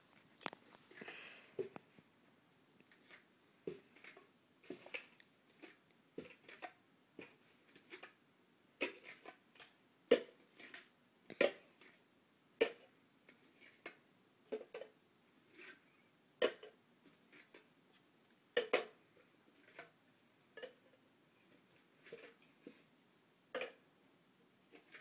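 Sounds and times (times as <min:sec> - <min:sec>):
plastic cups clicking and knocking: 0:02.8 - 0:08.2, 0:08.8 - 0:12.0, 0:12.6 - 0:15.8, 0:16.4 - 0:17.7, 0:18.5 - 0:22.8, 0:23.5 - 0:23.8, 0:24.7 - 0:25.0.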